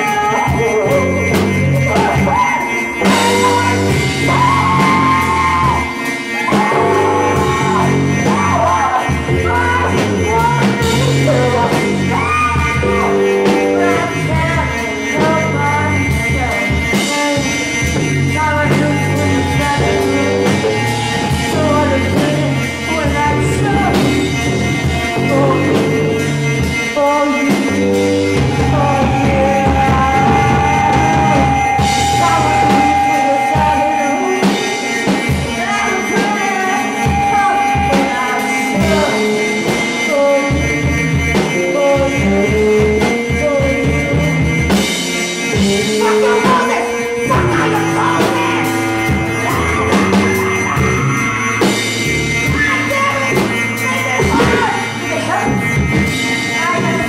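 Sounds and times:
live rock band playing: 0:00.0 - 0:57.0
held high note: 0:17.4 - 0:41.6, 0:45.5 - 0:57.0.

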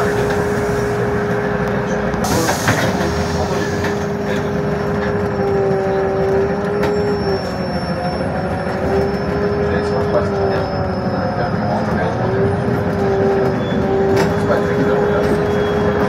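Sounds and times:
road rumble: 0:00.0 - 0:16.0.

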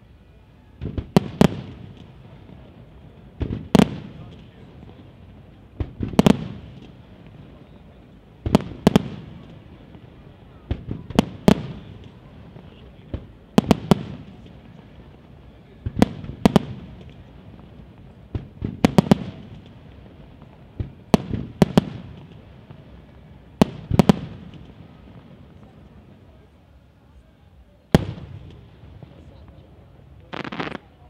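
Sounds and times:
firework shells bursting: 0:30.2 - 0:30.9.

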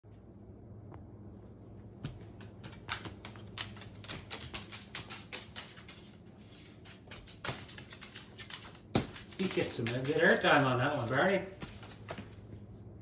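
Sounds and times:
low steady hum: 0:00.0 - 0:13.0
bird claws clicking on wood floor: 0:02.0 - 0:12.3.

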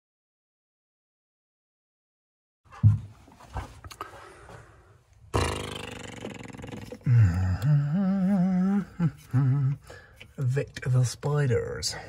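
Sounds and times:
man groaning: 0:05.4 - 0:09.8.

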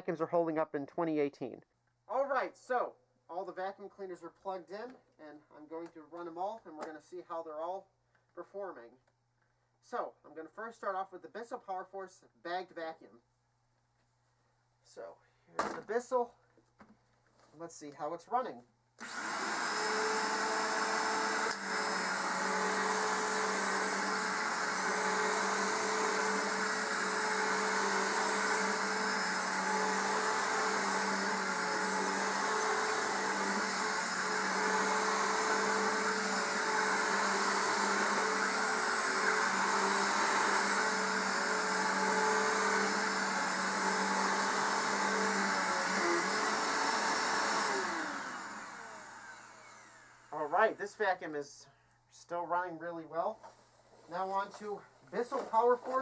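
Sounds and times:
upright vacuum cleaner running: 0:19.0 - 0:50.8
vacuum motor winding down: 0:19.0 - 0:50.8.

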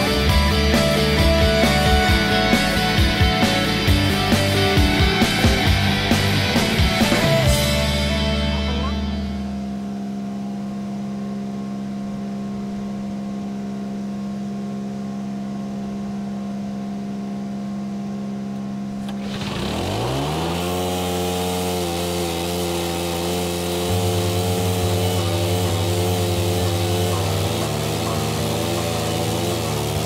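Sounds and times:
stump grinder engine: 0:00.0 - 0:09.7, 0:19.0 - 0:30.0
cutter wheel pulsing into stump: 0:19.0 - 0:30.0.

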